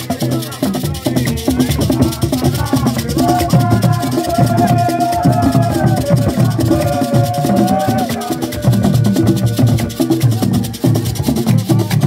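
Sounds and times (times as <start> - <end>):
hand drums beaten fast: 0.0 - 12.0
shaken rattle: 0.0 - 12.0
group singing: 0.1 - 12.0
hand clapping: 0.9 - 12.0.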